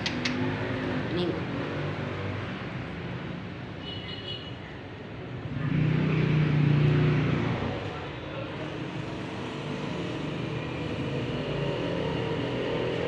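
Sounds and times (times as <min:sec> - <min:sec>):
traffic hum: 0:00.0 - 0:13.0
vehicle passing close by: 0:05.4 - 0:07.9.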